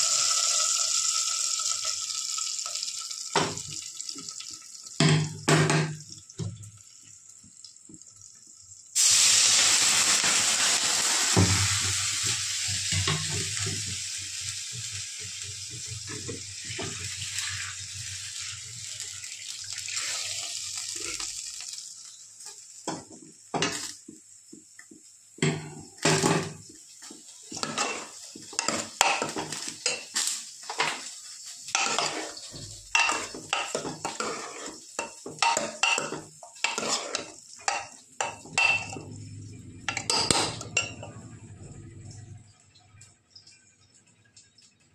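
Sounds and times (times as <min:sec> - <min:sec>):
metal ladle scraping a pot: 0:31.8 - 0:32.4, 0:33.0 - 0:34.8, 0:35.4 - 0:37.4.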